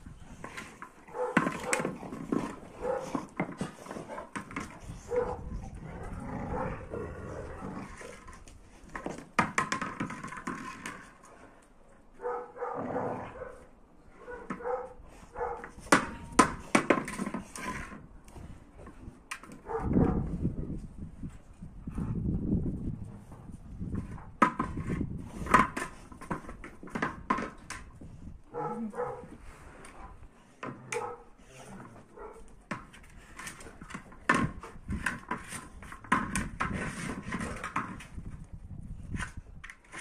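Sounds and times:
ball knocking on concrete: 0:00.3 - 0:05.3, 0:07.8 - 0:11.2, 0:15.6 - 0:18.0, 0:23.9 - 0:28.0, 0:32.4 - 0:38.4
dogs barking and whining: 0:01.0 - 0:07.7, 0:12.2 - 0:16.3, 0:19.6 - 0:20.3, 0:30.8 - 0:32.6.

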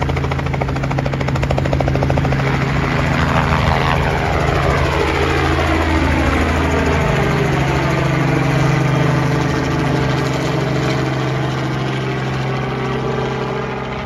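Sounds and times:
helicopter engine drone: 0:00.0 - 0:14.0
helicopter rotor chop: 0:00.0 - 0:14.0.

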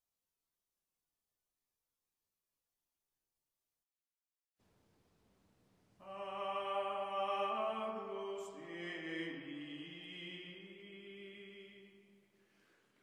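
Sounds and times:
slow chanted vocal music: 0:06.0 - 0:12.7.

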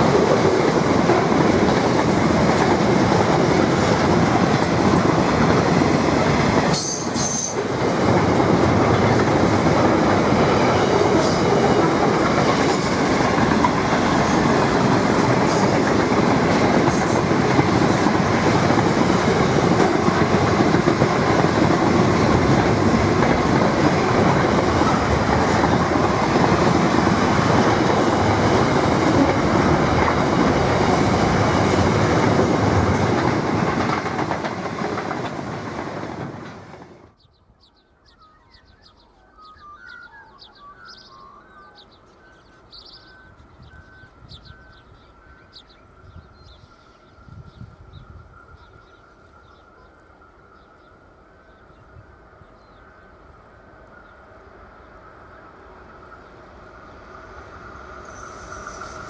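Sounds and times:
steel wheels running on rails: 0:00.0 - 0:36.9, 0:55.8 - 0:59.0.

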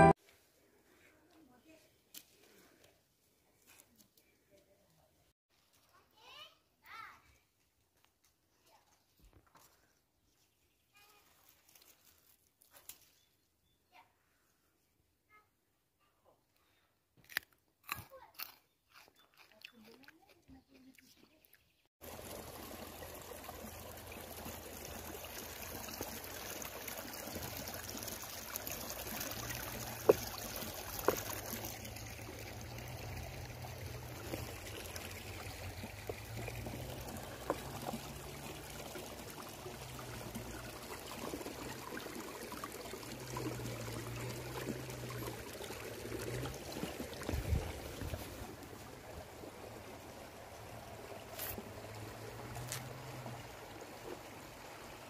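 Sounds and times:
running water trickling: 0:19.7 - 0:55.0.

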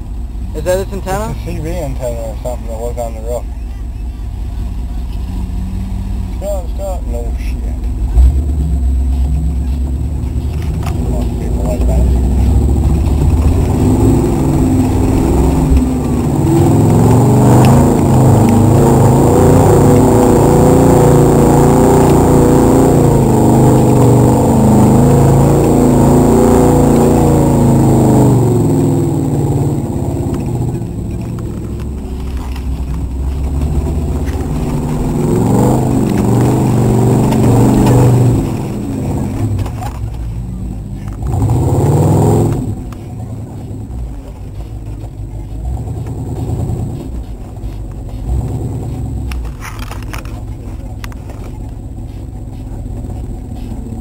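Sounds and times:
truck engine revving hard: 0:08.0 - 0:51.3.

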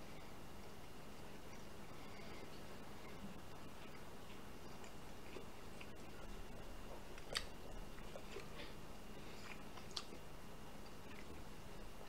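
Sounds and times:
faint chewing: 0:00.0 - 0:12.0
faint steady hum: 0:00.0 - 0:12.0.

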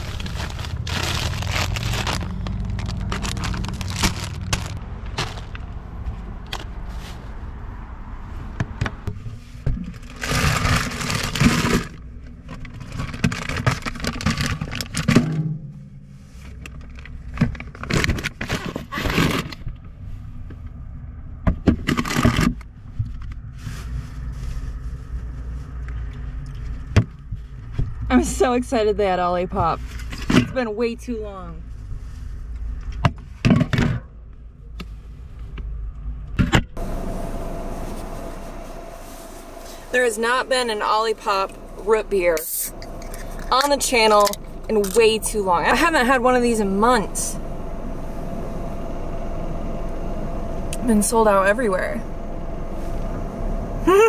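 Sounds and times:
packages knocking and scraping: 0:00.0 - 0:05.7
plastic bags rustling: 0:00.0 - 0:07.3, 0:09.9 - 0:15.1.

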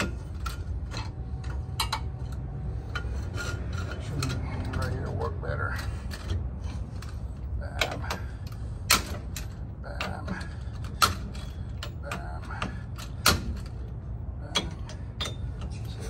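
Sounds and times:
wrench clicking on lug nuts: 0:07.8 - 0:15.9.

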